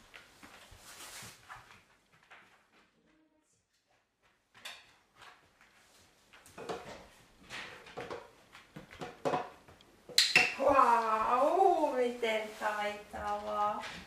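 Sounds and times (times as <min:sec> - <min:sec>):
dog moving on laminate floor: 0:00.0 - 0:03.0.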